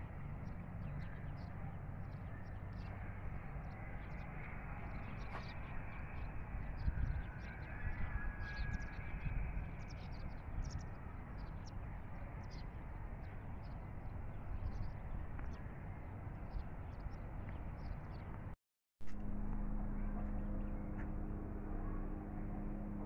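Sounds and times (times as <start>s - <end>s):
wind rumble on microphone: 0.0s - 23.0s
birds chirping: 0.2s - 18.5s.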